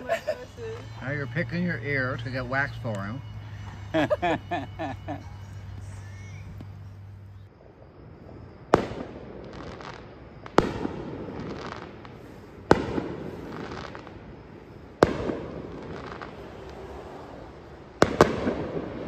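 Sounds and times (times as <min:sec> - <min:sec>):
fireworks bangs: 0:07.5 - 0:19.0.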